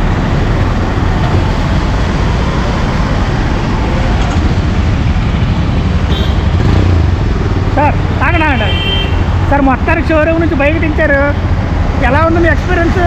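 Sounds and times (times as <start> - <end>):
street traffic: 0.0 - 13.0
motorcycle engine running: 4.4 - 8.2.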